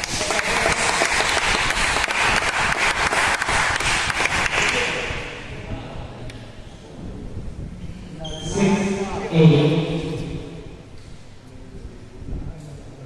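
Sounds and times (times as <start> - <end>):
spectators clapping: 0.0 - 5.0.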